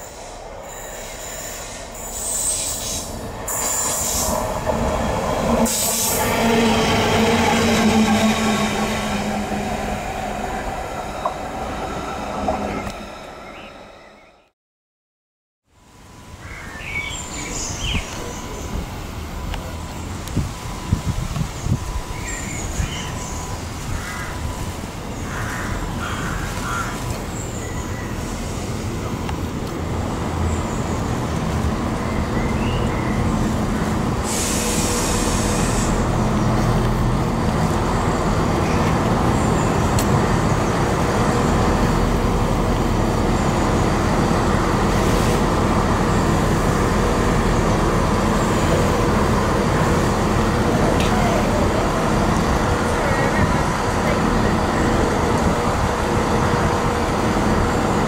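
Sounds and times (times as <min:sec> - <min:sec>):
diesel train engines: 0:00.0 - 0:14.5, 0:15.7 - 0:58.0
burst of hiss: 0:34.2 - 0:36.0.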